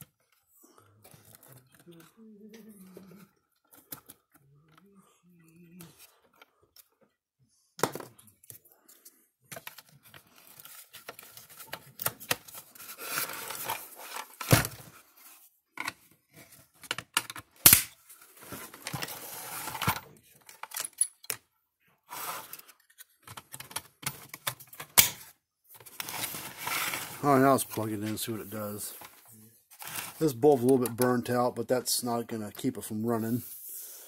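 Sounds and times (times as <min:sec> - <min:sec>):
clicks and rattling of parts: 0:16.7 - 0:21.5, 0:22.4 - 0:26.2.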